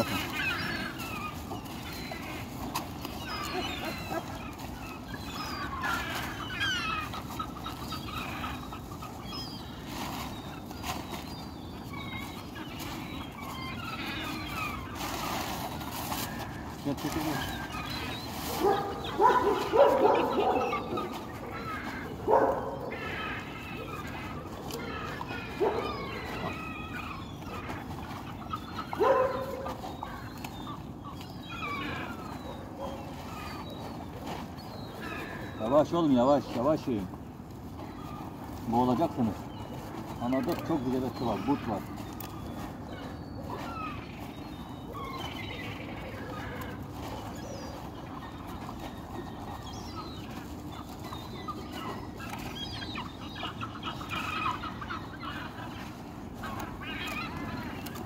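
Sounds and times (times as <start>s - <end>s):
animal cries: 0.0s - 58.0s
birds squawking: 0.0s - 58.0s.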